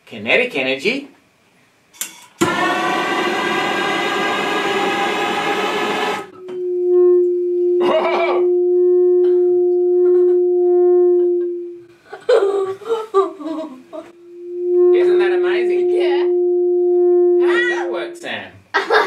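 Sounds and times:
blowtorch flame rushing: 2.4s - 6.3s
pipe singing low tone: 2.4s - 11.9s, 14.1s - 18.2s.

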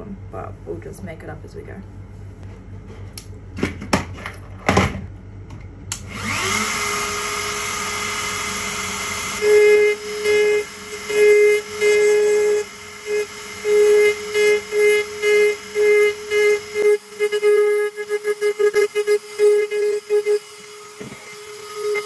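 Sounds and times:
rotary engraving pen whining: 6.1s - 22.0s.

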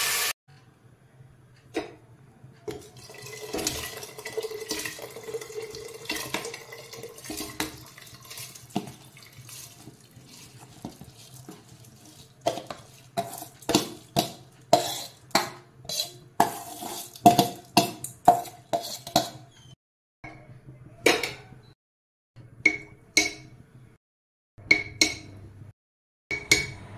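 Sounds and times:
metal spoon scraping steel bowl: 7.2s - 19.8s.

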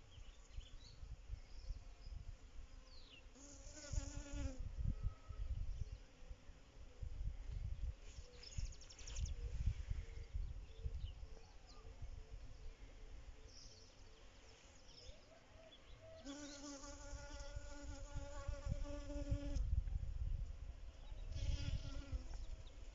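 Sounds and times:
bee buzzing: 3.4s - 4.6s, 16.3s - 19.6s
wind buffeting microphone: 17.0s - 22.7s.

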